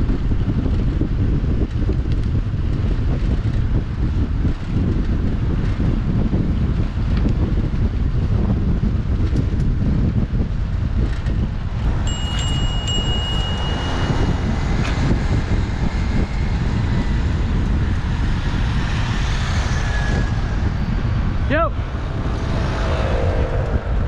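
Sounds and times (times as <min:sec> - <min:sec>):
wind rushing over microphone: 0:00.0 - 0:24.0
bicycle bell ringing: 0:11.9 - 0:15.0.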